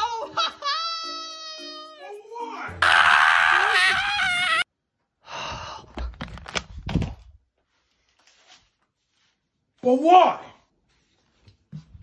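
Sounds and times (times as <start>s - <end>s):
man screaming: 2.7s - 4.6s.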